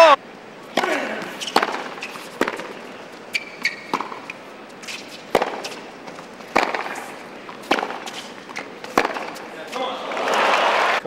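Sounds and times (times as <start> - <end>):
tennis ball hit with racquets: 0.7 - 10.4
shoe squeaks on court: 1.4 - 6.2.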